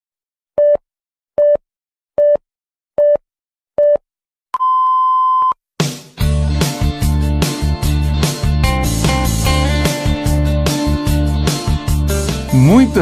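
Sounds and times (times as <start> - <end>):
band music: 12.2 - 13.0.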